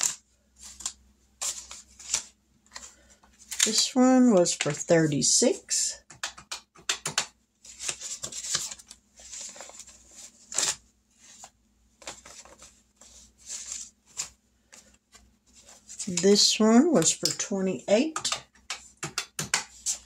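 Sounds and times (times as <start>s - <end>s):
paper rustling and crinkling: 0.0s - 3.9s, 7.6s - 16.4s.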